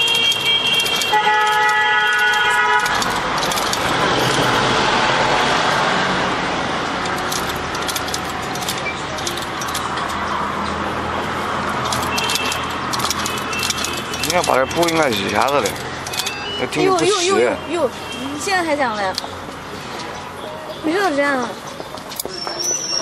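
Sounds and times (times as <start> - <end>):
sewing machine clicking: 0.0 - 4.6, 11.9 - 16.4
street traffic noise: 0.0 - 23.0.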